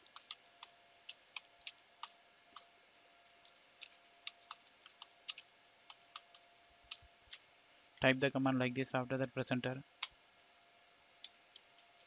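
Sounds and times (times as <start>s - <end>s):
keyboard typing: 0.0s - 2.7s, 3.3s - 7.0s
faint steady hum: 0.0s - 12.0s.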